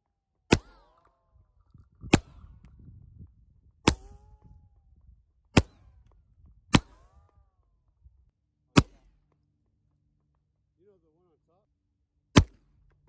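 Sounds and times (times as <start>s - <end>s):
gunshots: 0.5s - 1.1s, 6.7s - 7.3s, 8.7s - 9.1s, 12.3s - 12.7s.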